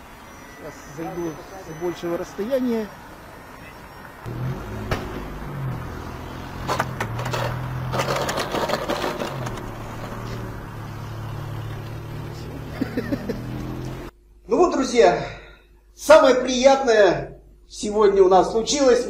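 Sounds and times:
wheels scraping on asphalt: 0:03.6 - 0:14.1.

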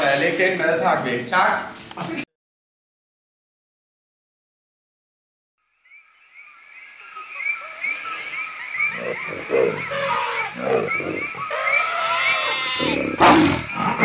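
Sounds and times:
high chirping animal call: 0:05.9 - 0:14.0
low grunting calls: 0:07.1 - 0:14.0.

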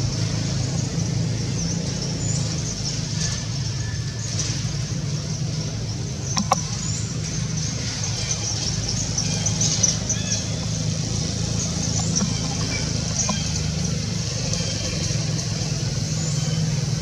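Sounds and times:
low motor hum: 0:00.0 - 0:17.0.

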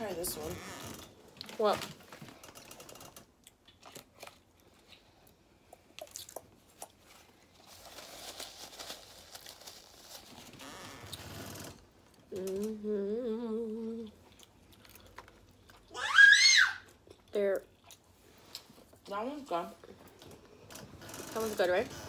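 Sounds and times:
paper napkin crinkling: 0:07.0 - 0:11.1.

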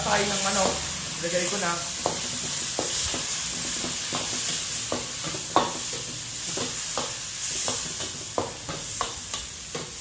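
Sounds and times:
giblets sizzling in hot oil: 0:00.0 - 0:10.0
utensil knocking and scraping wok: 0:00.0 - 0:10.0.

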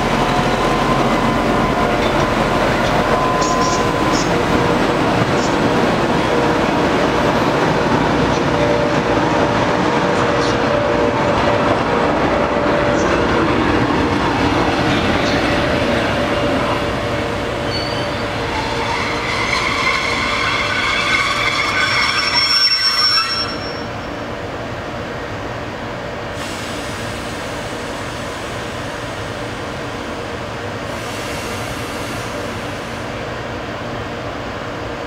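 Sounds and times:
train wheels rumbling: 0:00.0 - 0:35.0
high-pitched wheel squeal: 0:17.7 - 0:24.0.

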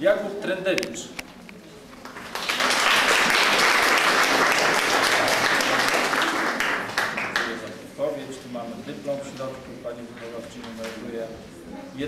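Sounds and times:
audience applauding: 0:02.0 - 0:07.7.

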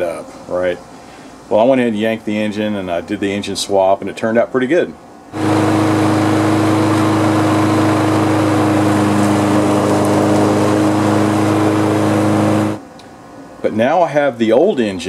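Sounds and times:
lawn mower engine running: 0:05.4 - 0:12.8.

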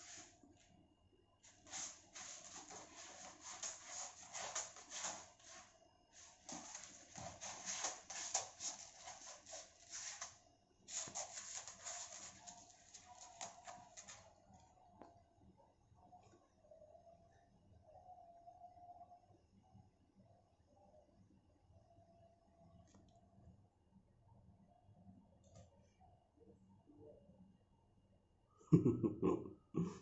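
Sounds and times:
cat scratching in cat litter: 0:01.5 - 0:14.3.

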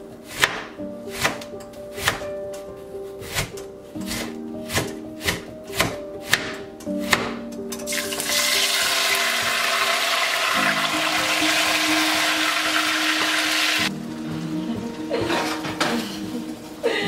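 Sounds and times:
knife chopping on cutting board: 0:00.3 - 0:02.2, 0:03.2 - 0:07.4
onions sizzling in hot oil: 0:07.9 - 0:14.4.

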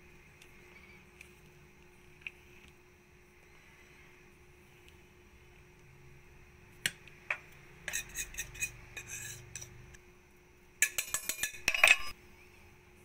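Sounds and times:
metal spoon scraping and clinking bowl: 0:07.8 - 0:09.8, 0:10.8 - 0:12.2.

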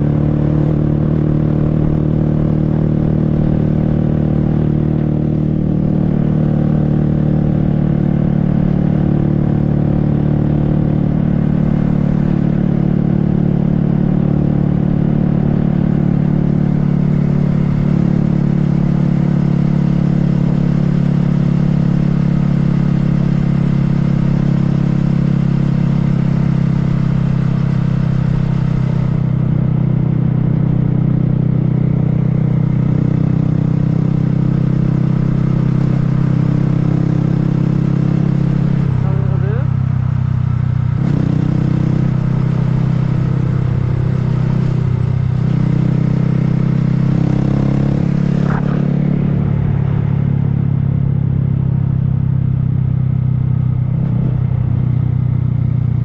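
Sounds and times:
motorcycle engine cruising: 0:00.0 - 0:56.0
rush of noise: 0:48.0 - 0:51.0.

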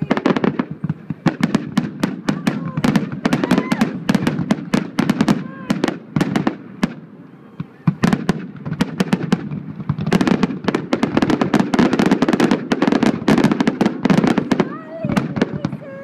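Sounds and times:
fireworks cracks and bangs: 0:00.0 - 0:16.0.

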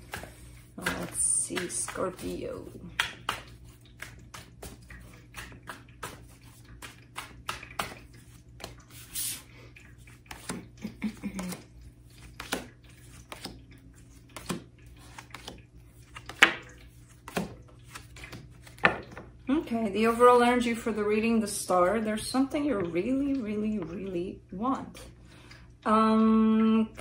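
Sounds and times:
cards slapping on wooden table: 0:12.3 - 0:13.5, 0:14.4 - 0:16.6, 0:17.2 - 0:19.2.

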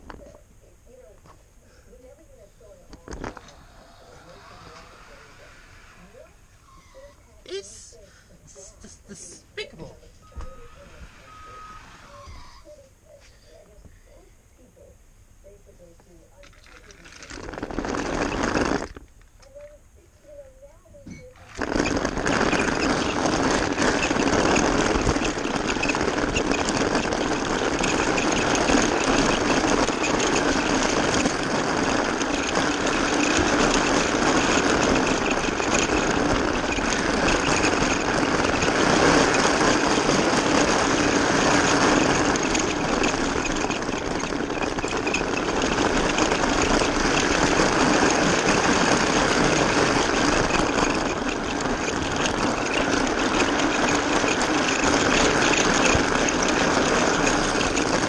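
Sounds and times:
plastic wheels rattling on track: 0:02.9 - 0:07.9, 0:09.9 - 0:12.7, 0:16.4 - 0:20.4, 0:21.2 - 0:58.0
small electric motor whirring: 0:03.3 - 0:07.4, 0:16.5 - 0:19.5, 0:21.4 - 0:58.0.

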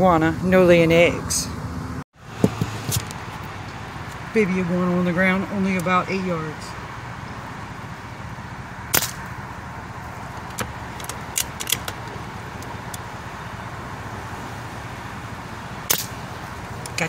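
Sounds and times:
air rifle shot crack: 0:08.9 - 0:09.3.

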